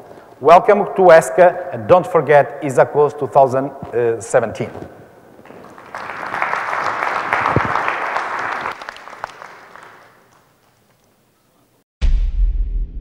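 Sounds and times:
audience applause: 5.5 - 10.7.

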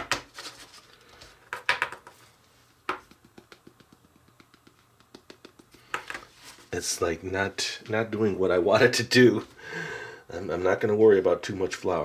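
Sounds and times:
faint light ticks and taps: 2.9 - 6.2.

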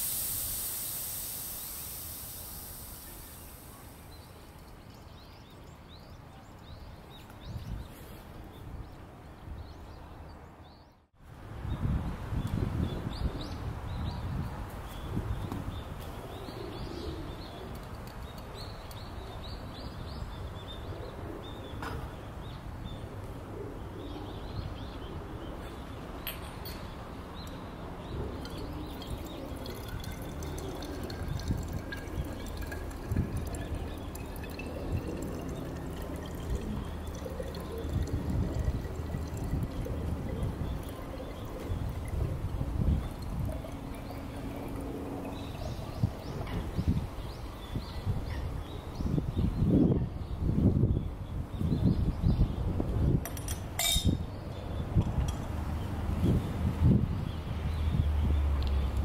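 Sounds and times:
liquid trickling into a bottle: 0.0 - 5.2, 28.3 - 46.3
birds chirping: 0.6 - 11.1, 14.9 - 52.7.

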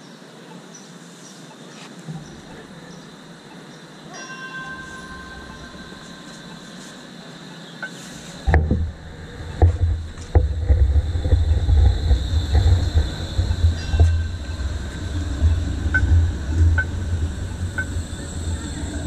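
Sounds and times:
tram rumbling past: 2.1 - 19.0
wheels clacking on rails: 7.8 - 19.0.

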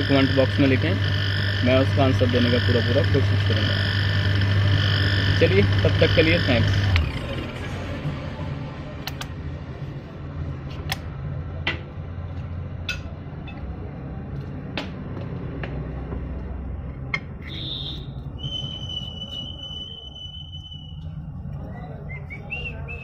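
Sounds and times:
steady low hum: 0.0 - 14.2
high whistling tone: 17.4 - 23.0.

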